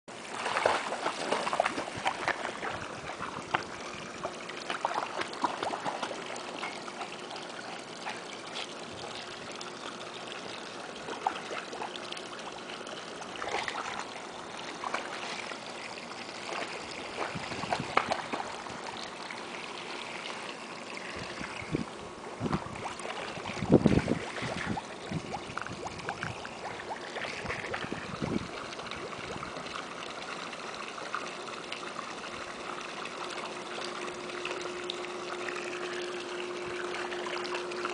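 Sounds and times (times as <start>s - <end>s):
water lapping: 0.2s - 37.9s
dog splashing in water: 0.3s - 3.2s, 4.6s - 7.1s.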